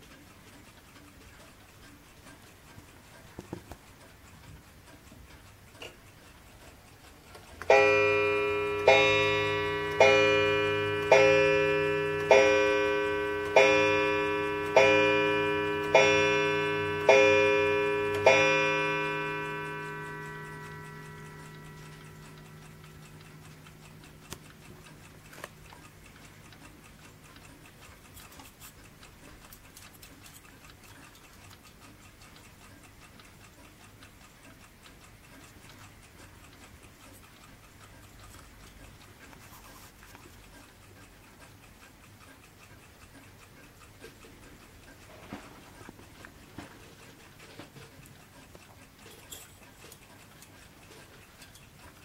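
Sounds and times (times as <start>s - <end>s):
sharp clicks: 0.0s - 39.5s
mantel clock ticking: 0.0s - 52.0s
clock strike ringing: 7.7s - 25.3s.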